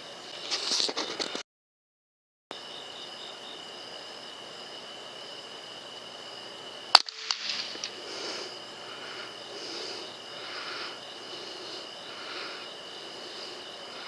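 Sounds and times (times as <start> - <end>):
faint hiss: 2.6 - 14.0
air rifle shot: 6.9 - 8.1.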